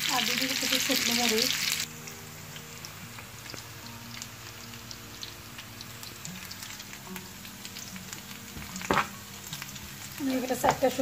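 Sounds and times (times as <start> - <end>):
onions sizzling in hot oil: 0.0 - 11.0
crackling oil pops: 8.5 - 9.2.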